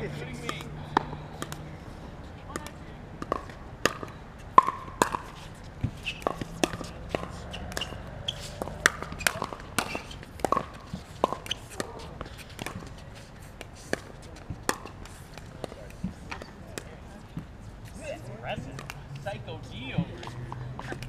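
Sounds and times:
ball bouncing on hard court: 0:02.5 - 0:13.0
paddles hitting plastic ball: 0:02.5 - 0:13.0.

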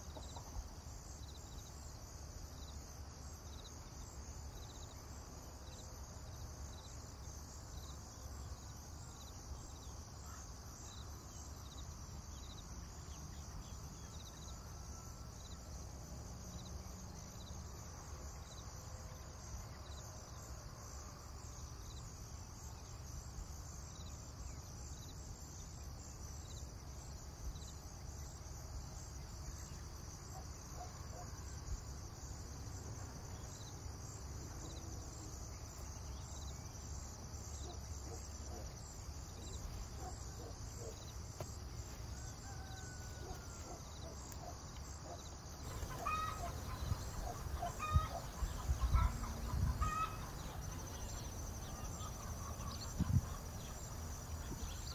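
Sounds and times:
crickets chirring: 0:00.0 - 0:54.9
hens clucking: 0:45.7 - 0:50.9.

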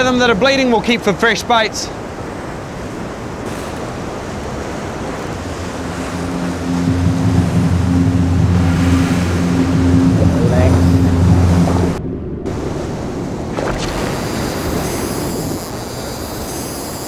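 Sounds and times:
surf breaking over rocks: 0:03.3 - 0:16.0
low droning hum: 0:04.5 - 0:16.4.

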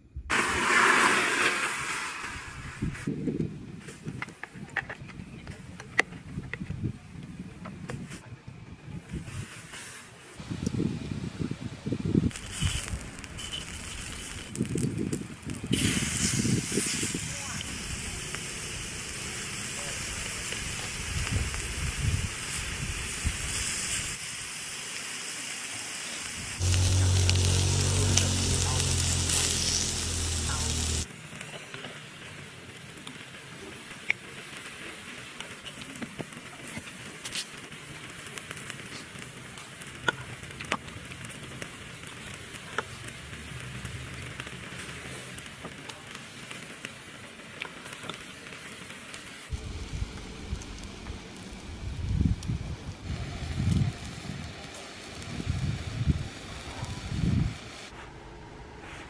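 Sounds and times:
wind rumble on microphone: 0:02.3 - 0:09.5, 0:10.4 - 0:18.9, 0:20.3 - 0:24.2, 0:49.5 - 0:59.0
meat sizzling on grill: 0:12.3 - 0:31.2, 0:36.9 - 0:57.9
steady low hum: 0:49.5 - 0:53.0.

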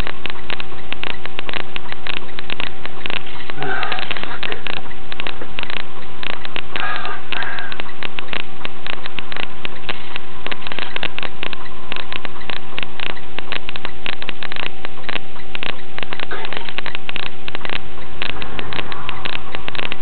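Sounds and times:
constant tonal hum: 0:00.0 - 0:20.0
dense irregular clicks: 0:00.0 - 0:20.0.

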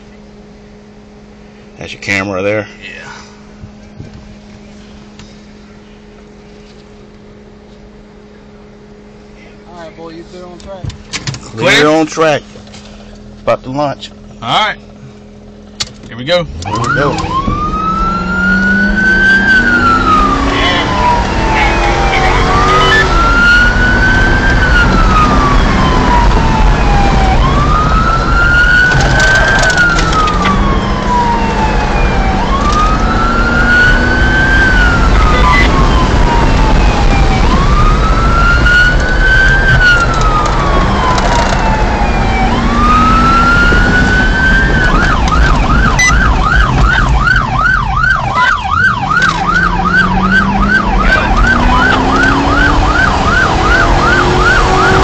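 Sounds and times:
road and wind rumble: 0:00.0 - 0:55.0
car engine revving: 0:03.2 - 0:55.0
police siren wailing and yelping: 0:16.5 - 0:55.0.

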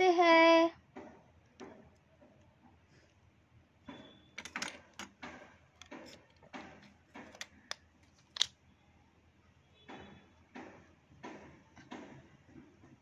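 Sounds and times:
small metal parts clicking and scraping: 0:04.4 - 0:05.2.

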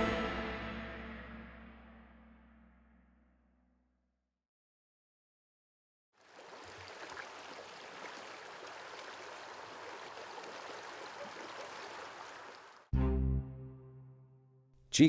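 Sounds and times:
stream of water flowing: 0:06.2 - 0:12.9.

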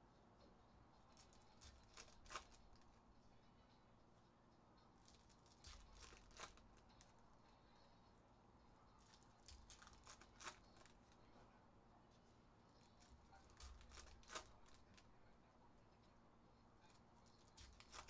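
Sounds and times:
foil wrappers tearing: 0:01.2 - 0:02.8, 0:05.1 - 0:07.1, 0:09.0 - 0:11.1, 0:13.0 - 0:15.0, 0:17.3 - 0:18.0.

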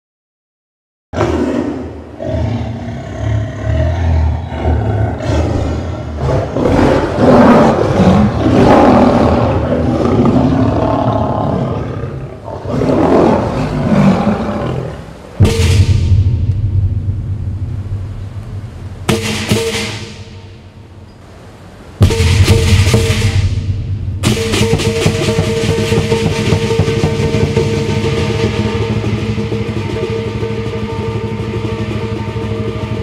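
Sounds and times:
lion roars and growls: 0:01.2 - 0:16.5
low rumble: 0:15.2 - 0:33.0
loud crash: 0:15.4 - 0:21.0, 0:22.0 - 0:29.8.

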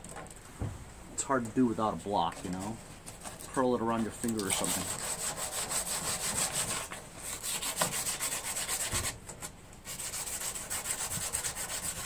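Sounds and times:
sandpaper rubbing on plastic: 0:04.0 - 0:12.0.

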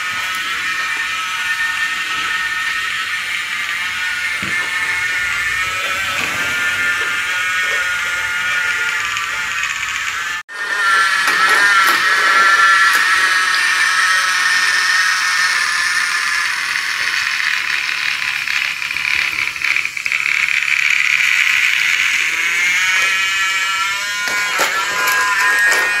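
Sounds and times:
toy train motor whirring: 0:00.0 - 0:26.0
toy train rattling on wooden track: 0:00.0 - 0:26.0.

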